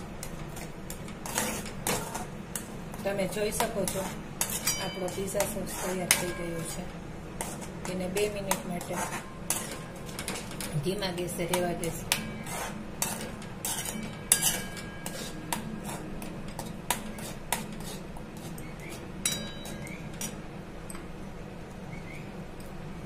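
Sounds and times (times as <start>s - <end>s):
spoon scraping and clinking in pan: 0.6s - 2.7s, 3.6s - 6.8s, 7.4s - 10.8s, 11.5s - 20.4s.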